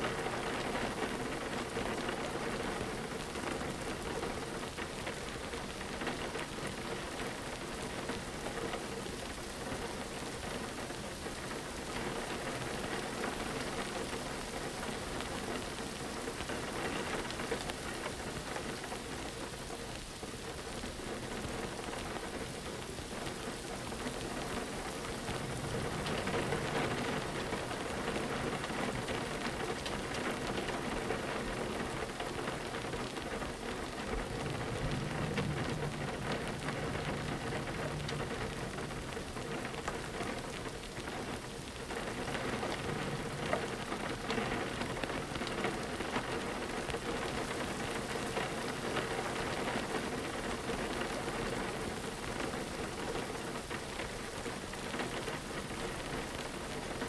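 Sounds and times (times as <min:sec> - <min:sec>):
rain pattering on window: 0:00.0 - 0:57.0
low rumble: 0:25.1 - 0:27.6, 0:34.0 - 0:39.9.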